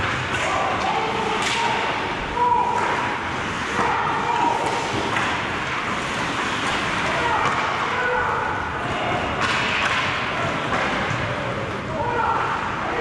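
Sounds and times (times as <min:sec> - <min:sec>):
players shouting: 0:00.2 - 0:05.2, 0:06.9 - 0:13.0
hockey sticks and puck knocking: 0:02.6 - 0:11.4.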